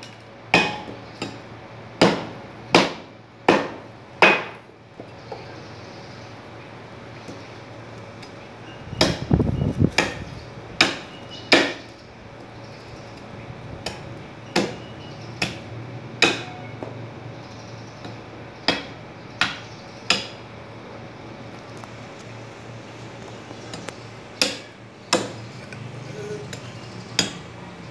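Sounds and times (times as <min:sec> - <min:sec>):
cleaver chopping through ribs: 0:09.0 - 0:09.3, 0:14.6 - 0:15.6, 0:16.2 - 0:16.6, 0:18.7 - 0:20.4, 0:23.7 - 0:25.8, 0:26.5 - 0:27.4.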